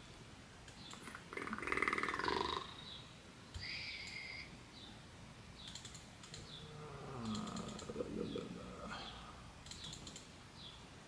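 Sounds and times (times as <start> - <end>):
keyboard clicking: 5.6 - 6.6, 7.2 - 8.0, 9.6 - 10.3
man humming: 6.6 - 9.3.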